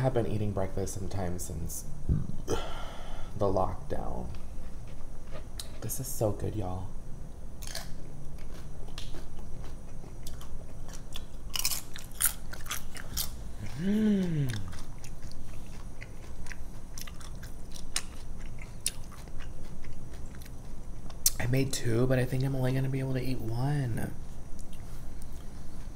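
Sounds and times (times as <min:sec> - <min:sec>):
chewing crunchy chips: 0:07.6 - 0:21.4
person humming with enjoyment: 0:13.6 - 0:14.8.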